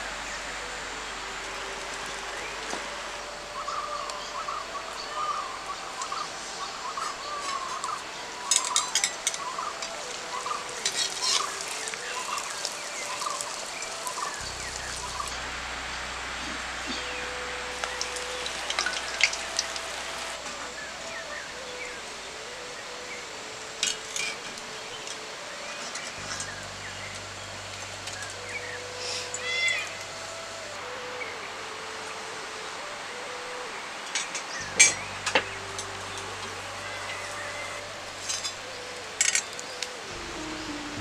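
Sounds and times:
oil sizzling: 8.3 - 22.6.

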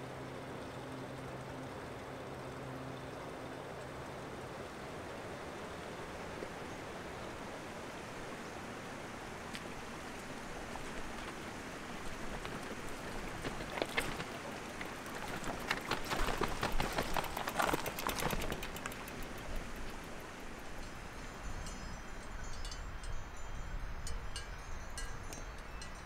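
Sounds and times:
tyre crunching over stones: 10.5 - 19.1
footsteps on stones: 10.7 - 18.9
rocks clattering: 12.1 - 19.0.

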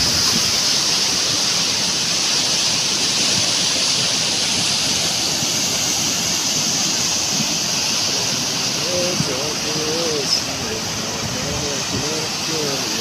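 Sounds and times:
water rushing down streambed: 0.0 - 13.0.

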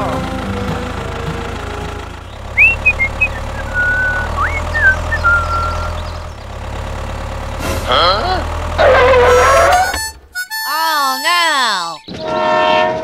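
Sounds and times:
tractor engine idling: 0.0 - 10.6
high whistling chirps: 2.6 - 6.3.

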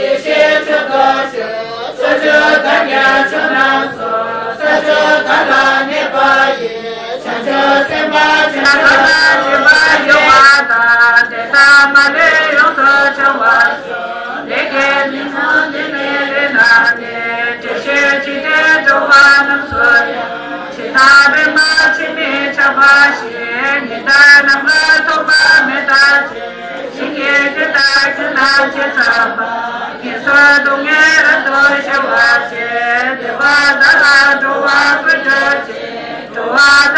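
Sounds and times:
voices chanting prayers together: 0.0 - 36.9.

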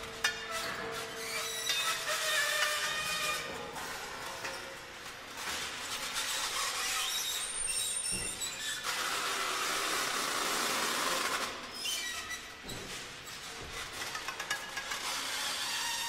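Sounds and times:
metal scraping with squeals: 0.2 - 4.7, 6.0 - 9.4, 11.7 - 13.5, 14.4 - 16.0.

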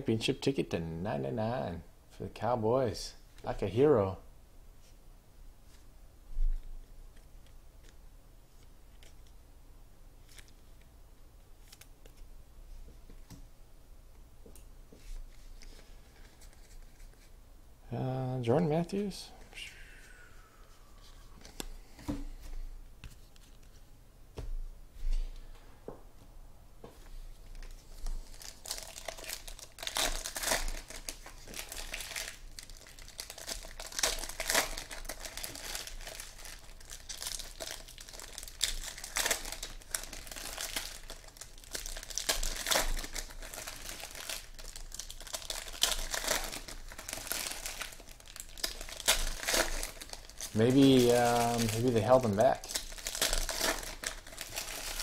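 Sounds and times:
foil wrappers crinkling and tearing: 27.5 - 55.0.

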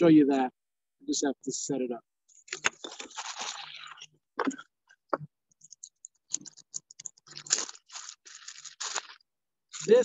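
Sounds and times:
plastic crinkling and rustling: 2.5 - 4.1, 6.3 - 10.0
plastic parts ticking: 4.4 - 10.0.

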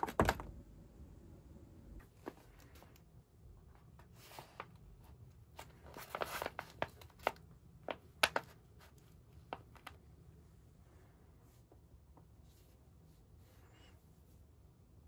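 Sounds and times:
stiff paper rustling and crackling: 3.9 - 10.0.

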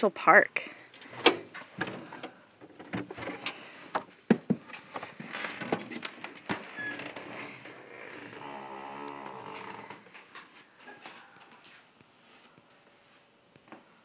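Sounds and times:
door squeak: 6.7 - 10.0.

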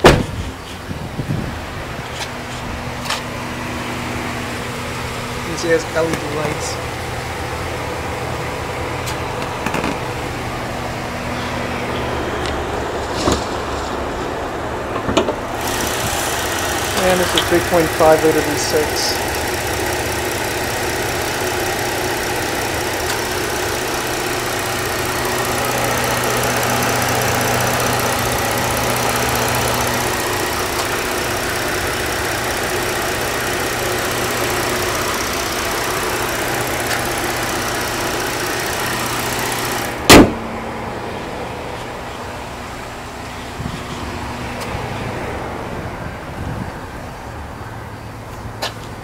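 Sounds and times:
car hood slamming shut: 0.0 - 0.5, 40.1 - 40.5
car engine idling: 0.0 - 49.0.

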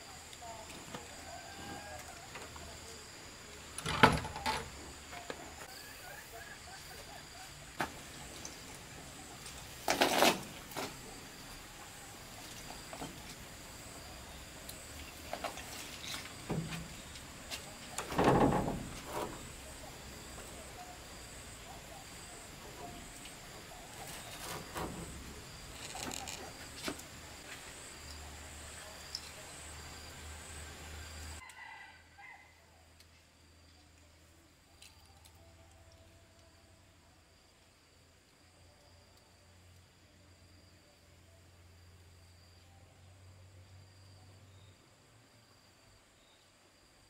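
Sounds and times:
faint high-pitched whine: 0.0 - 47.0
rope net rustling: 9.6 - 11.0.

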